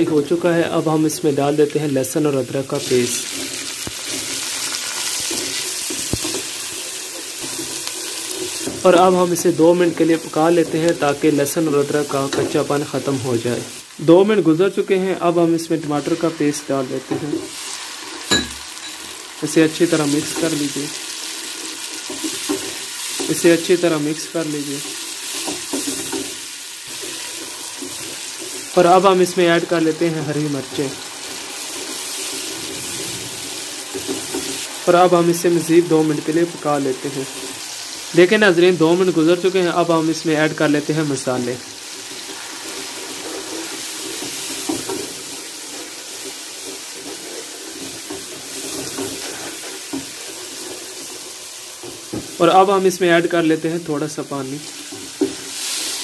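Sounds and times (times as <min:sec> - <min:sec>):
food sizzling in oil: 0:00.0 - 0:56.0
wooden spoon scraping a pot: 0:03.2 - 0:09.1, 0:19.8 - 0:28.8, 0:29.6 - 0:34.8, 0:41.8 - 0:52.1.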